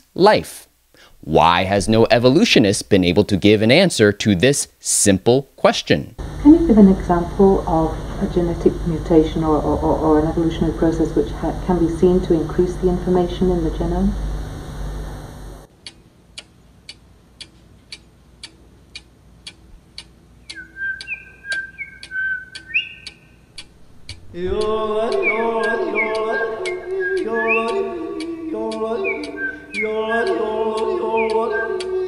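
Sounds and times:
steady ticking: 15.4s - 32.0s
whistled phrase: 20.5s - 23.2s, 25.1s - 27.8s, 29.0s - 30.0s
voices singing in harmony: 24.2s - 32.0s.

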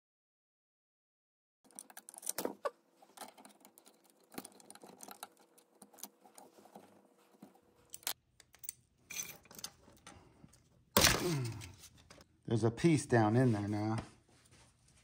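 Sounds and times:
tools clicking and clinking: 1.7s - 12.2s.

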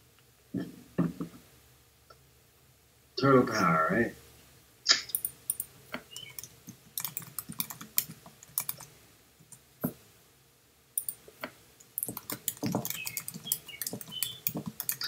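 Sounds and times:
typing on computer keyboard: 5.1s - 8.9s, 11.0s - 11.2s, 11.8s - 15.0s.

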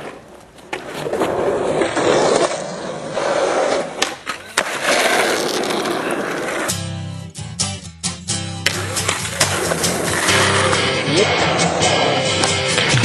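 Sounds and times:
skateboard wheels rolling on concrete: 0.0s - 6.9s, 8.6s - 13.0s
skateboard clacks: 3.7s - 6.7s, 8.6s - 10.9s, 12.3s - 13.0s.

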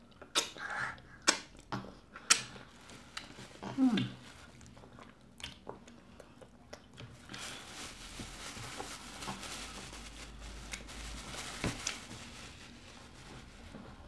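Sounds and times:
eating and lip-smacking: 0.1s - 7.2s
plastic wrap crinkling: 2.6s - 5.0s, 7.0s - 14.0s.

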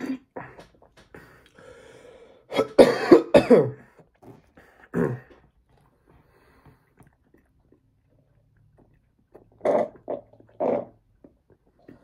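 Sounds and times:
person drinking milkshake: 3.9s - 12.0s.

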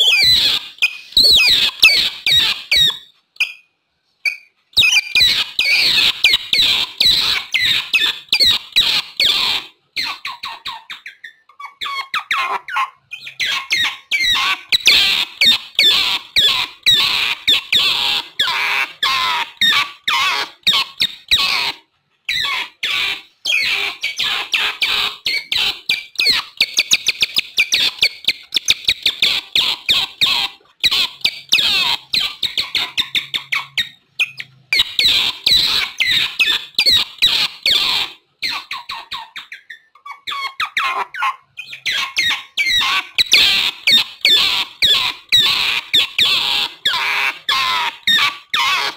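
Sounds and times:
otters chirping and squeaking: 0.0s - 48.9s.

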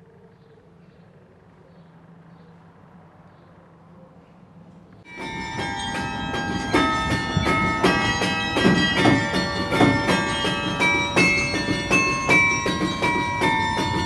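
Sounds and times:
carillon bells playing a tune: 5.1s - 14.0s.

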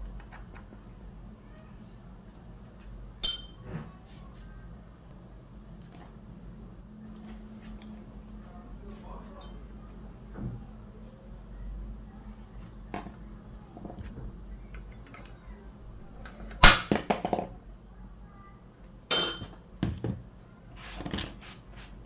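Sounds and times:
screwdriver clicking on metal parts: 14.7s - 15.6s.

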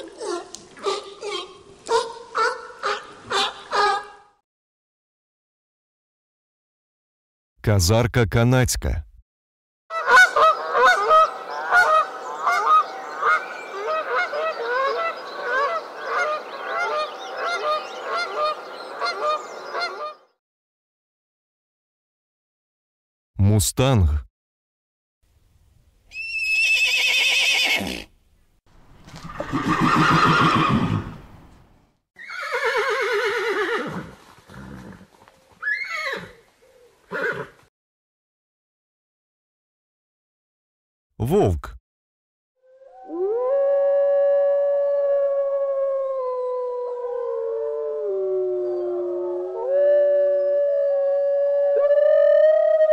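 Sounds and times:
geese honking: 9.9s - 20.2s
horse neighing: 26.1s - 28.1s, 29.2s - 31.2s, 32.2s - 35.0s, 35.6s - 36.4s, 37.1s - 37.6s.

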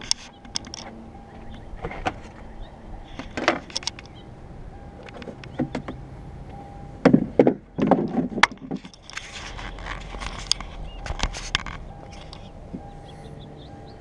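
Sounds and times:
car hood clunks and rattles: 0.0s - 4.2s, 5.0s - 9.1s.

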